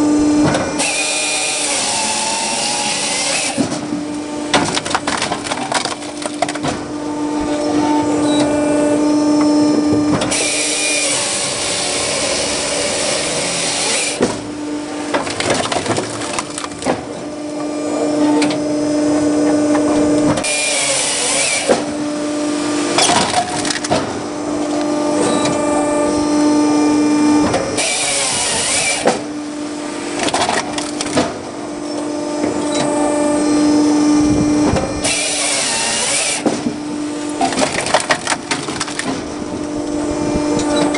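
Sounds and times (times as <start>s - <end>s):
steady hydraulic hum: 0.0s - 40.9s
chainsaw cutting log: 0.5s - 6.8s, 10.2s - 17.2s, 20.4s - 22.0s, 27.8s - 29.3s, 34.7s - 39.2s
wood cracking and knocking: 4.5s - 6.8s, 15.1s - 17.2s, 37.4s - 39.3s.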